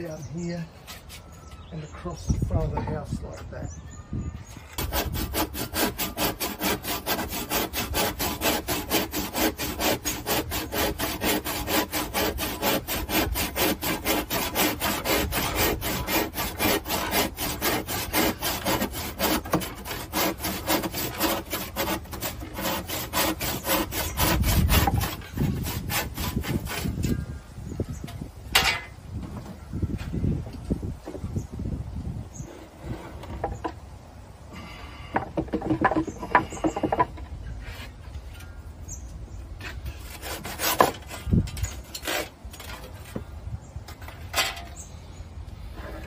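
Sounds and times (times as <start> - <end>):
handsaw sawing: 4.8 - 27.1, 39.6 - 42.9.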